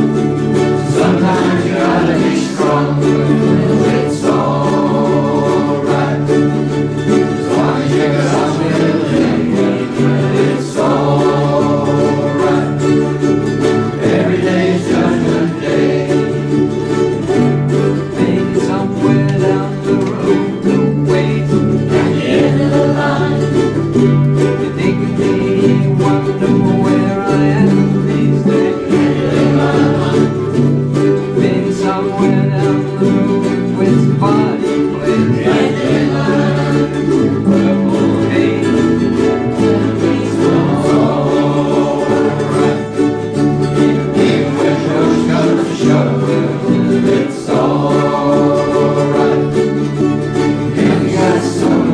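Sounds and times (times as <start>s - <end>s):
ukuleles strumming: 0.0s - 51.9s
voices singing along: 0.0s - 51.9s.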